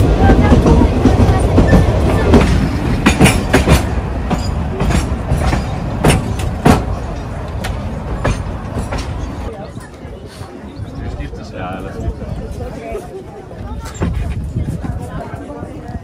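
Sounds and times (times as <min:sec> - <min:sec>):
railway carriages rumbling: 0:00.0 - 0:16.0
wheels clacking on rails: 0:00.0 - 0:16.0.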